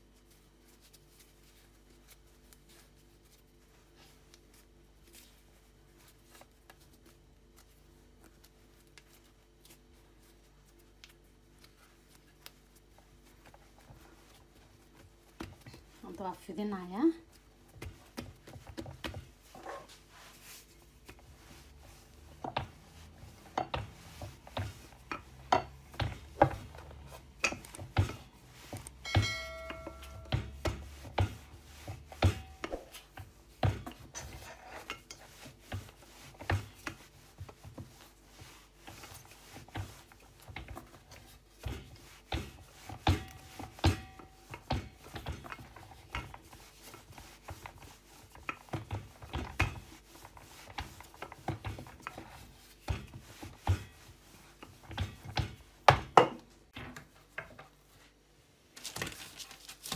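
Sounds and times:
rolling pin knocking on board: 28.8 - 32.9
short ringing tone: 29.0 - 30.3.

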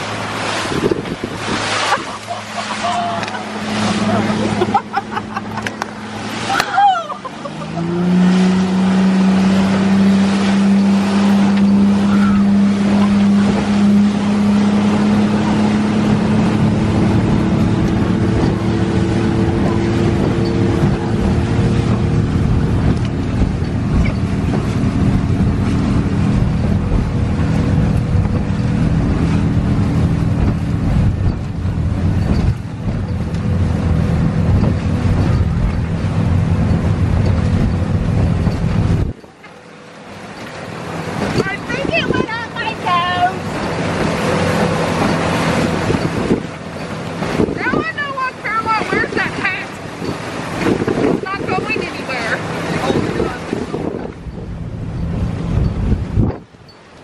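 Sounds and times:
motorboat engine drone: 0.0 - 57.0
waves slapping a boat hull: 0.0 - 57.0
wind and water rushing: 0.0 - 57.0.

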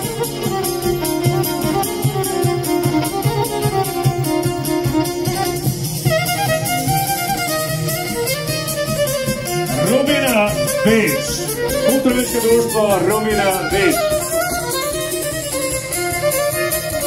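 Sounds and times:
folk fiddle music with beat: 0.0 - 17.0.

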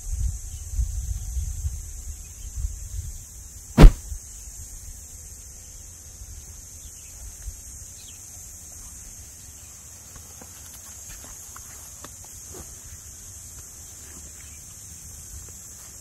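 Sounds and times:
faint high hiss: 3.8 - 4.0
sharp knock: 3.8 - 4.0.

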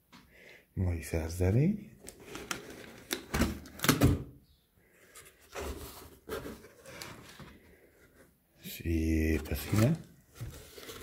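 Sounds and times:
cardboard box scraping and rustling: 5.2 - 8.2, 9.5 - 11.0.

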